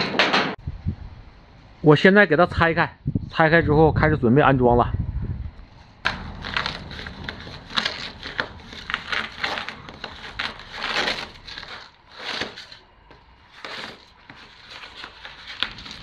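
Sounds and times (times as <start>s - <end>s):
insulation wrapping being torn: 6.0s - 16.0s.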